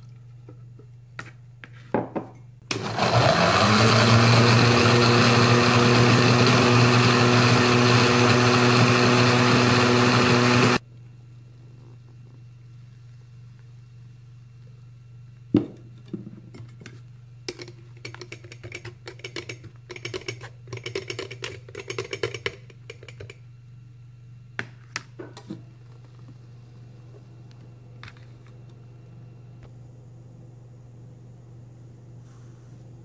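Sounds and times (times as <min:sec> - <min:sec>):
steady low hum: 0:10.8 - 0:33.0.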